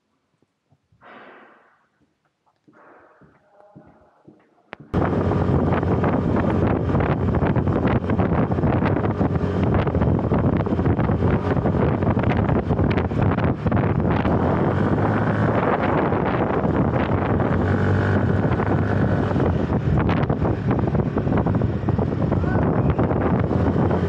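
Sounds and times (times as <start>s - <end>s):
wind buffeting microphone: 4.8s - 24.0s
motor scooter engine humming: 4.9s - 24.0s.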